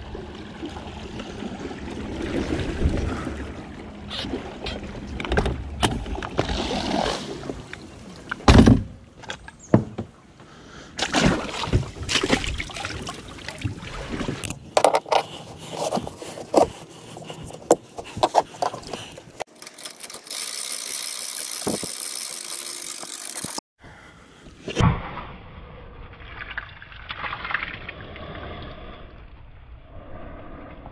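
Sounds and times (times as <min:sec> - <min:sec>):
splashing in shallow water: 0:11.0 - 0:14.7.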